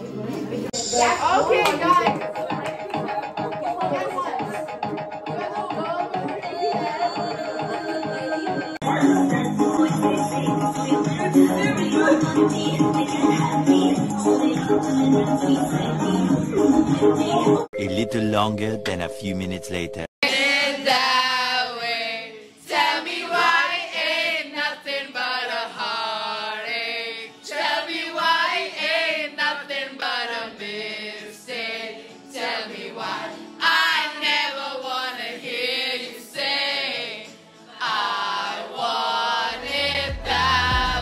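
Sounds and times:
group of voices singing: 2.0 - 17.7, 20.2 - 41.0
deep bass music beat: 39.8 - 41.0.

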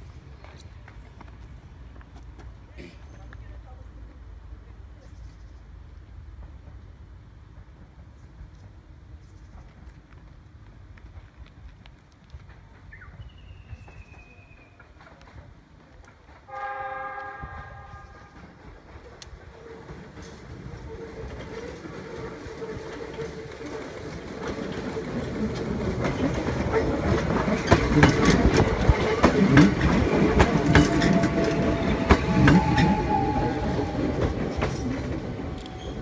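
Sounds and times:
electric train running past: 12.3 - 36.0
wheels clicking over rail joints: 18.2 - 36.0.

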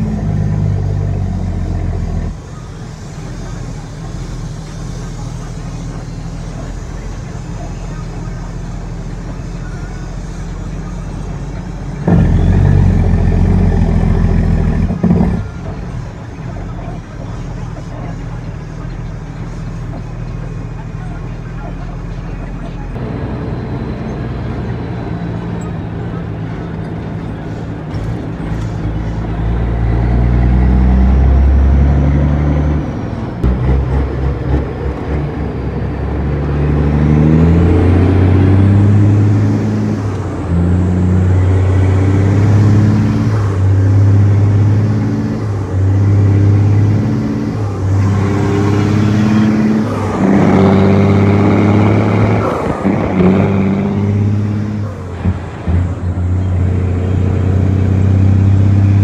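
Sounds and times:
truck diesel engine shifting gears: 0.0 - 59.0.

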